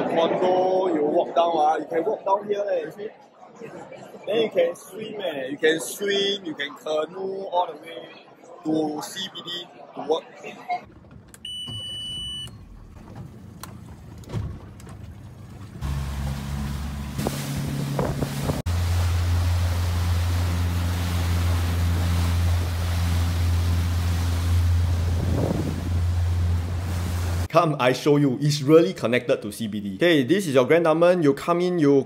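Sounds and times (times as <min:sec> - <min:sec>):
wind: 0:00.0 - 0:27.5
water noise: 0:10.9 - 0:27.5
ignition beep: 0:11.4 - 0:12.6
motorboat engine running: 0:12.6 - 0:27.5.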